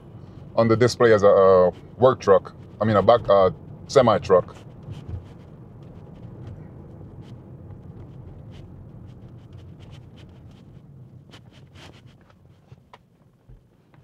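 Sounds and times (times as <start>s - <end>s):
road and tyre rumble: 0.0s - 14.0s.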